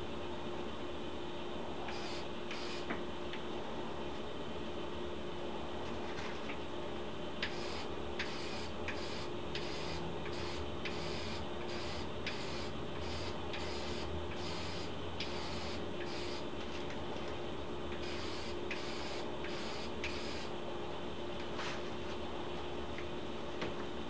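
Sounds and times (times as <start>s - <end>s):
steady background hum: 0.0s - 24.0s.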